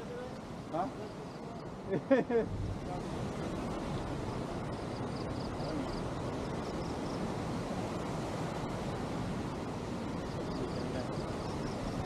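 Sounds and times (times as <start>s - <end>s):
wind on microphone: 1.4s - 12.0s
waterfall rushing: 2.8s - 12.0s.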